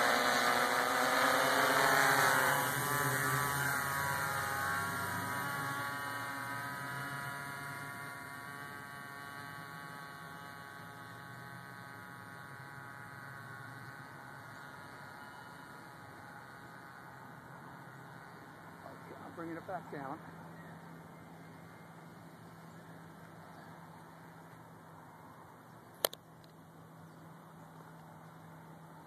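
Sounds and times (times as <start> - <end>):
quadcopter propellers whining: 0.0 - 24.8.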